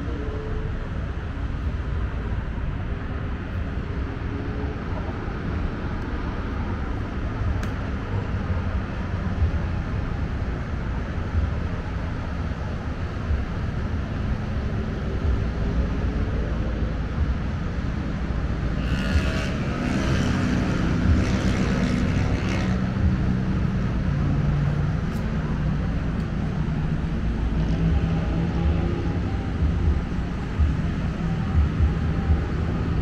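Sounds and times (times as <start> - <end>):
city traffic rumble: 0.0 - 33.0
passing vehicle with pitched hum: 0.0 - 33.0
boats on river: 20.4 - 33.0.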